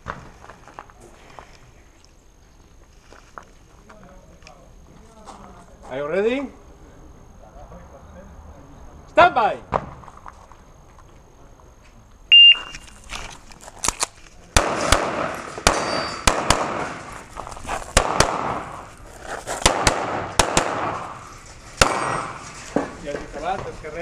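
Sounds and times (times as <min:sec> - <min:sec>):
shot timer beep: 0:12.3 - 0:12.8
pistol shots: 0:14.6 - 0:17.2, 0:17.9 - 0:18.9, 0:19.6 - 0:22.5.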